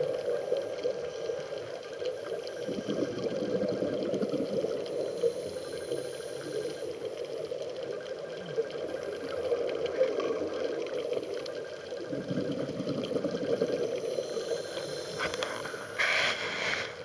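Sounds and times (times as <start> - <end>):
faint crackling clicks: 0.0 - 17.0
muffled underwater rush: 0.0 - 17.0.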